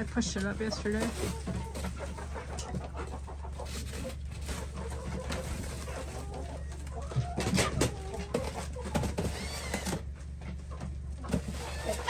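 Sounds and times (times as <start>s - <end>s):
chickens clucking: 0.0s - 12.0s.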